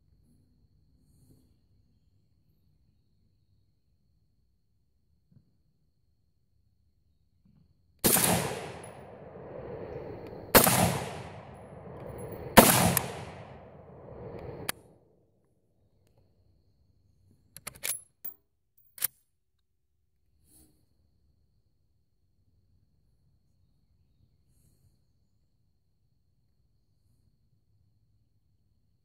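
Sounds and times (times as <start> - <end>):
rifle shots with long echo: 8.0 - 14.7
metallic rifle clicks: 8.1 - 14.7, 17.6 - 19.2.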